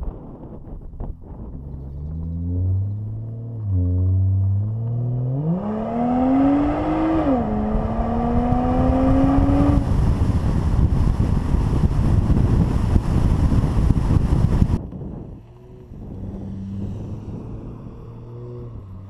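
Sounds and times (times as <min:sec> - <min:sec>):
wind on microphone: 0:00.0 - 0:19.0
car engine accelerating: 0:00.3 - 0:19.0.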